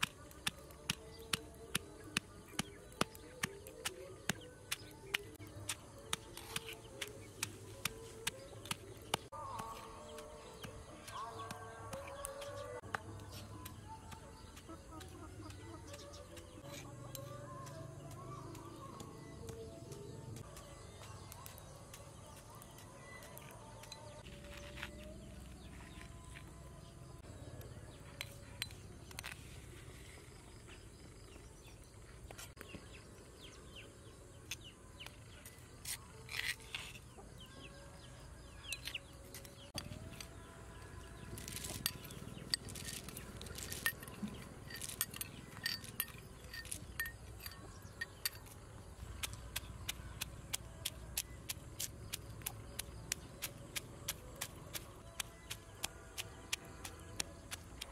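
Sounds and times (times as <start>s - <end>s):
pestle scraping: 0.4s - 20.1s, 41.1s - 57.9s.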